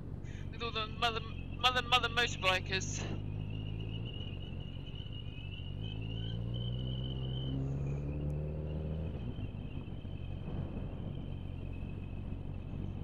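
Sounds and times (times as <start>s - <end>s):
motorcycle engine running: 3.0s - 13.0s
high wavering whistle: 3.1s - 8.0s.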